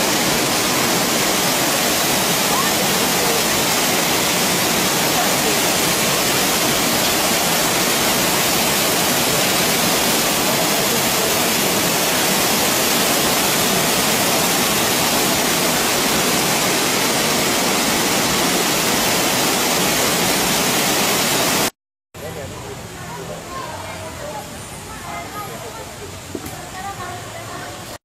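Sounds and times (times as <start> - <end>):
waterfall rushing: 0.0 - 21.8.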